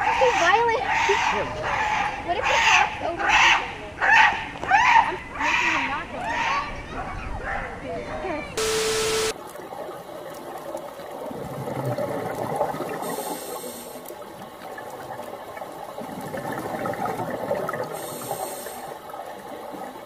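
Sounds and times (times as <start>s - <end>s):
underwater watery wash: 8.6s - 20.0s
regulator breaths hissing: 13.0s - 14.1s, 18.0s - 19.0s.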